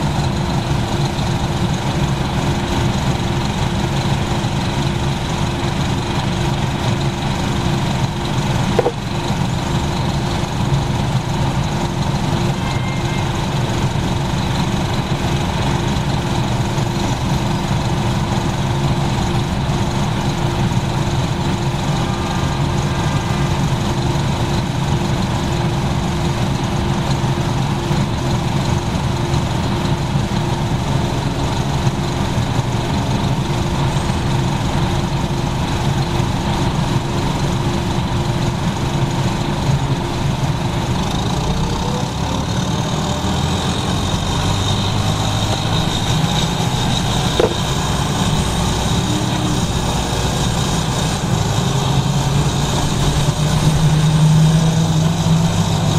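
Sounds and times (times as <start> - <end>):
bus diesel engine running: 0.0 - 55.9
transmission gear whine: 8.2 - 9.7, 41.3 - 54.1.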